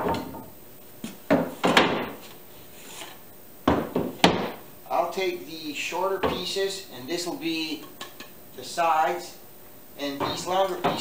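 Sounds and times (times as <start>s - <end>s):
wooden boards knocking together: 1.3s - 2.2s, 3.7s - 4.6s, 10.2s - 11.0s.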